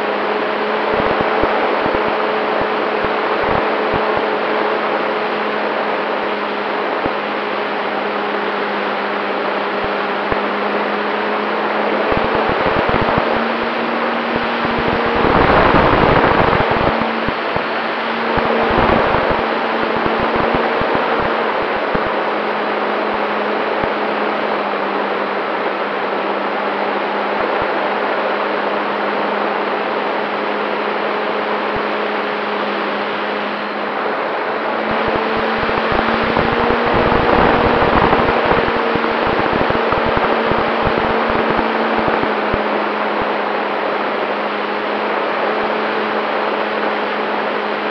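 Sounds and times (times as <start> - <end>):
air rushing over microphone: 12.0 - 22.2, 34.9 - 42.6.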